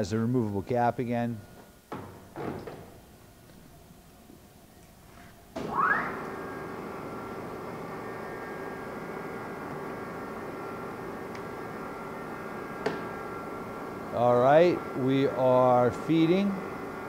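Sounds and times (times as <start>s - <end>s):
lathe motor whining: 5.6s - 17.0s.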